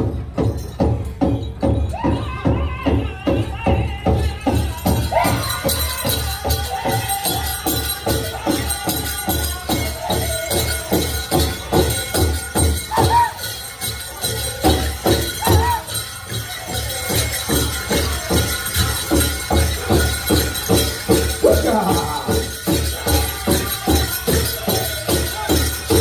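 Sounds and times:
big drum steady beat: 0.0 - 26.0
high-pitched singing voices: 1.6 - 26.0.

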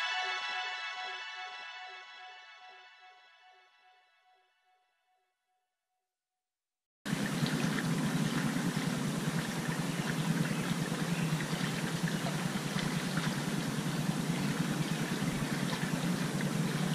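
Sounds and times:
creek flowing over rocks: 7.1 - 16.9.

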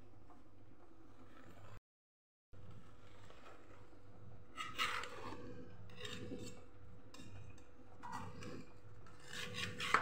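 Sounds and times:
knife scraping a metal plate: 4.5 - 7.4, 8.0 - 10.0.

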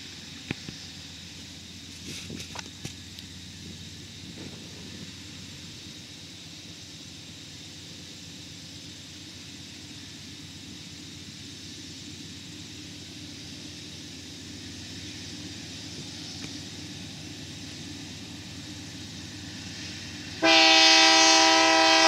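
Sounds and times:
high hiss: 0.0 - 22.0
locomotive engine drone: 0.0 - 22.0.

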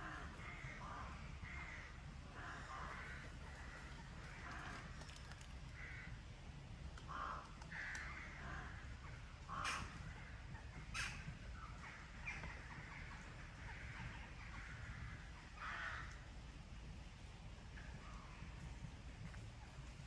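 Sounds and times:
crows cawing: 0.0 - 6.2, 7.1 - 11.2, 11.8 - 16.2.

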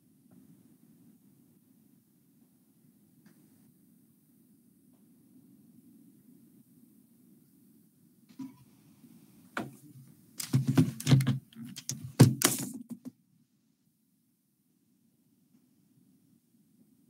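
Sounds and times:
knocks clicks and thuds: 10.4 - 13.1.

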